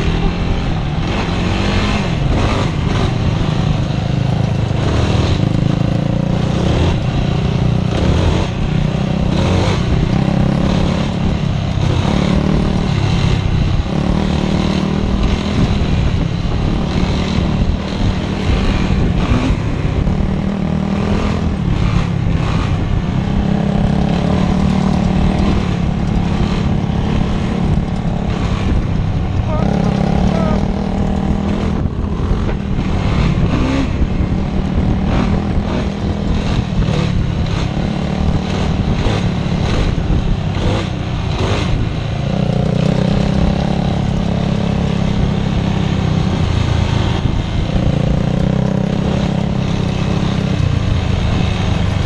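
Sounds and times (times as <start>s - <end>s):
atv engine revving: 0.0s - 52.0s.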